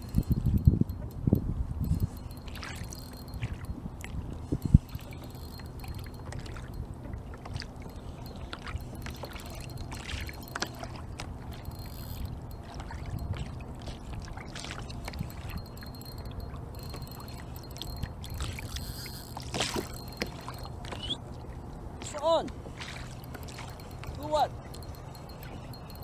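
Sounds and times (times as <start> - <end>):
wind on microphone: 0.0 - 6.8, 8.2 - 21.2
small clicks and ticks: 0.0 - 14.0, 14.8 - 21.2
water lapping against kayak hull: 1.8 - 26.0.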